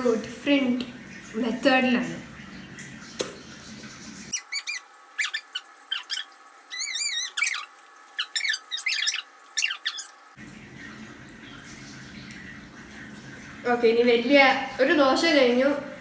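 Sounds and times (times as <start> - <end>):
high-pitched squeaky chirps: 4.3 - 10.2.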